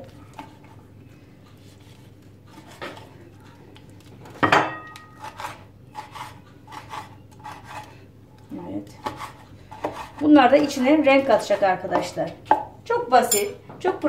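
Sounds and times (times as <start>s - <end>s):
knife chopping on wooden board: 9.0s - 10.2s.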